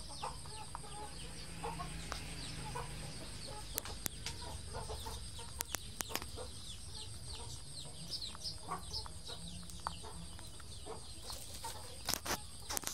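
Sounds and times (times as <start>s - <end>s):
chickens clucking: 0.0s - 12.9s
sharp clicks: 5.5s - 6.4s.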